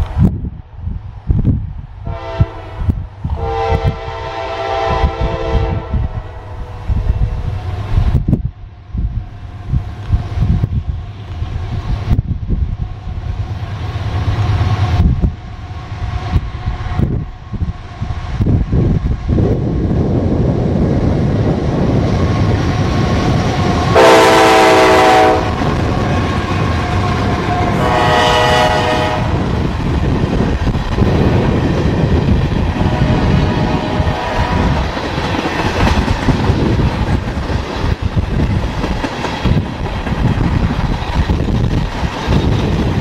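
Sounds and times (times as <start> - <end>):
diesel locomotive engines rumbling: 0.0 - 43.0
train air horn blasts: 2.0 - 6.8, 23.9 - 25.7, 26.9 - 29.5
train wheels clicking over rail joints: 29.4 - 43.0.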